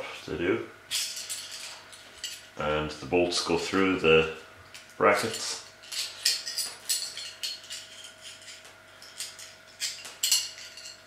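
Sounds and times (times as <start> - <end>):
metal bolts clinking on concrete: 4.8 - 11.0.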